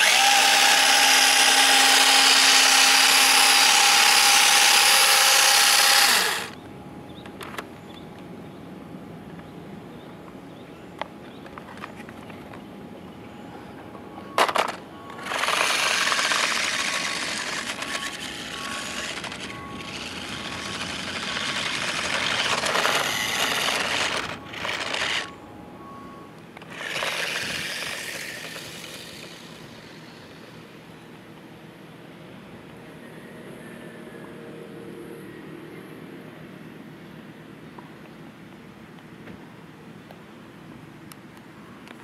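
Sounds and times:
toy car motor rattling: 0.0 - 6.6, 14.4 - 25.4, 26.6 - 30.5.

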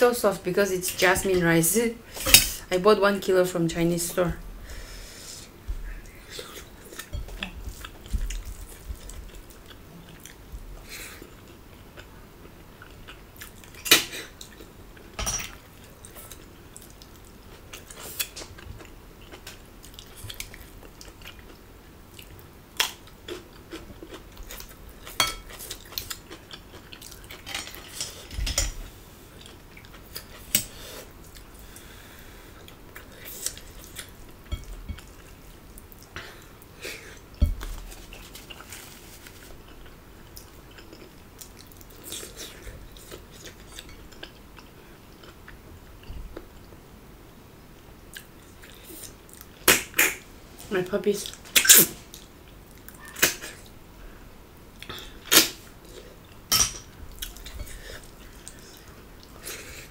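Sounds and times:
chewing and mouth sounds: 57.1 - 59.8.

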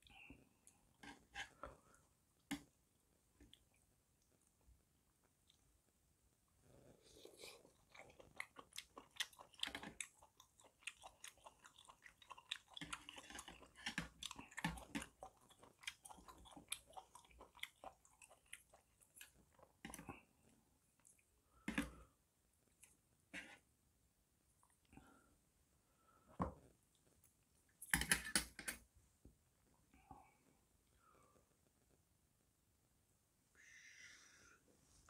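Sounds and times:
wet mouth chewing: 7.6 - 20.0.

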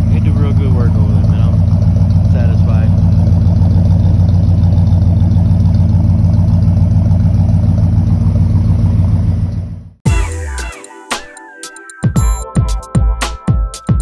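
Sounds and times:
pickup truck engine idling: 0.0 - 10.0
electronic music with beat: 10.0 - 14.0.

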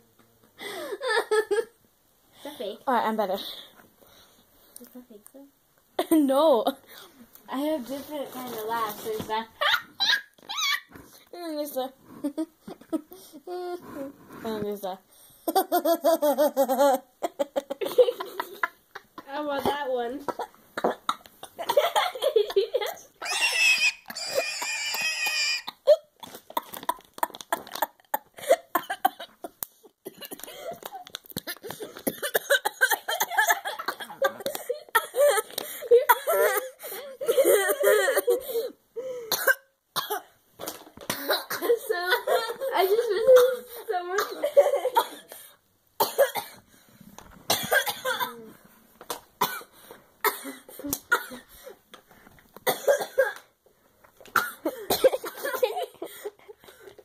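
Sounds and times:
girl laughing: 0.6 - 1.7, 9.6 - 10.9, 15.5 - 19.2, 21.6 - 26.1, 32.8 - 38.7, 41.6 - 45.2, 54.8 - 56.6
breathless gasps and coughs: 28.2 - 40.4, 41.0 - 46.7, 49.4 - 51.8.

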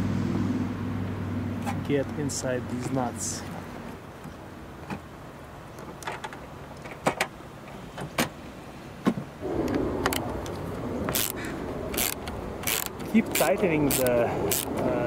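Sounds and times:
ratcheting screwdriver: 11.2 - 11.4, 12.0 - 14.8.

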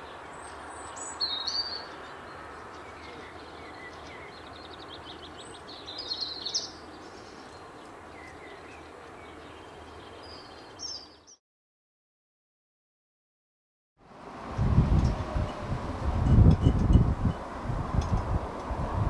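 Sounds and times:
small birds chirping and trilling: 0.0 - 11.4.

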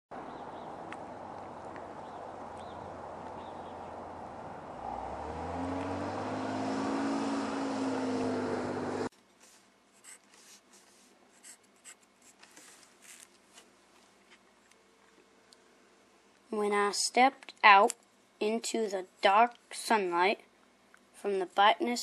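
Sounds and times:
passing vehicle engine: 0.2 - 9.1
pencil scratching on paper: 9.9 - 13.2.

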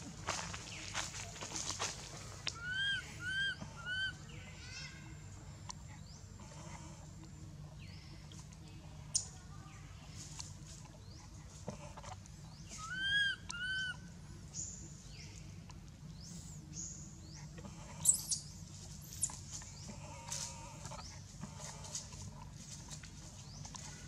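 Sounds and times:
infant monkey crying: 2.6 - 4.2, 12.8 - 14.0
birds chirping: 9.1 - 24.0.

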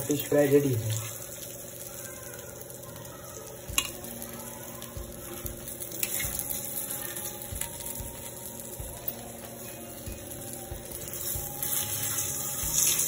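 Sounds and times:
oil sizzling: 0.0 - 13.0
spatula scraping on metal pan: 11.6 - 13.0.

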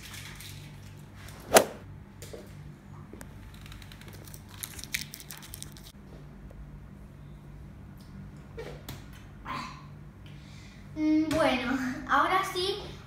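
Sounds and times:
steady low hum: 0.8 - 13.0.

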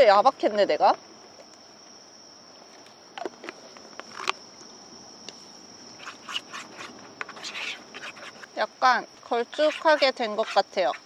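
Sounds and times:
high insect chirring: 0.0 - 11.0
spoon scraping against bowl: 6.0 - 8.5, 9.5 - 11.0.

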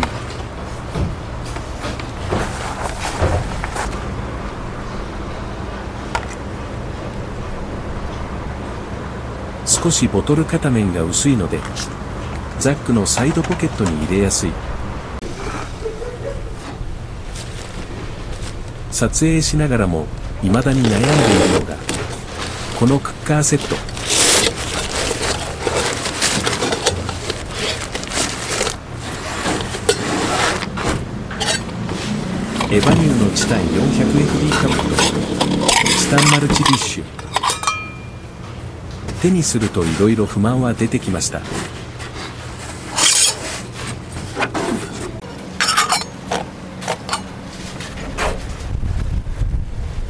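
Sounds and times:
crinkling rustling handling noise: 17.2 - 33.4, 34.4 - 38.2
metal cookware clinking: 31.3 - 31.7, 34.5 - 38.3, 45.6 - 46.2.

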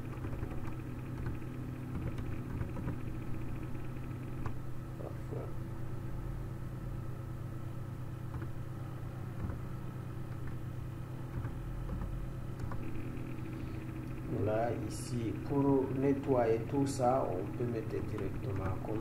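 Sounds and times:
steady low hum: 0.0 - 19.0
keyboard clicks: 11.3 - 12.9.

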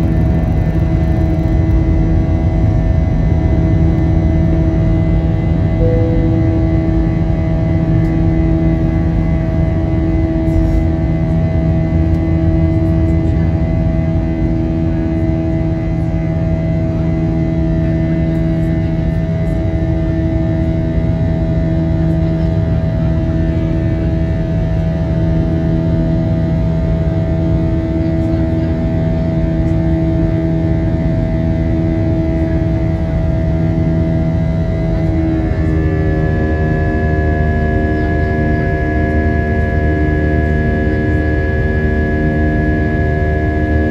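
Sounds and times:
jet engines and airflow rushing: 0.0 - 14.1
droning hum: 0.0 - 43.9.

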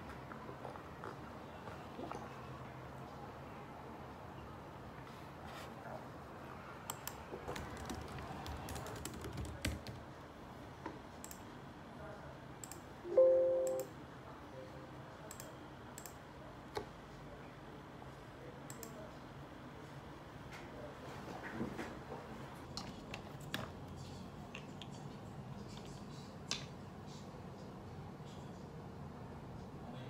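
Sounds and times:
laptop keyboard clicks: 6.9 - 10.0
short ringing tone: 13.1 - 13.9.

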